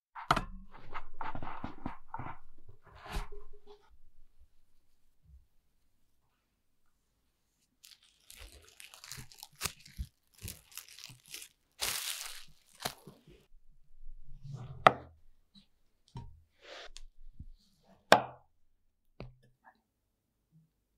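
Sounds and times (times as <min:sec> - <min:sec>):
cling film crinkling and tearing: 0:07.8 - 0:13.3.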